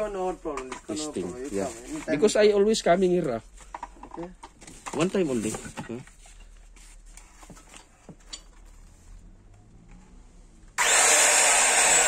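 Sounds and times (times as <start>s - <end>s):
circular saw running: 10.8s - 12.0s.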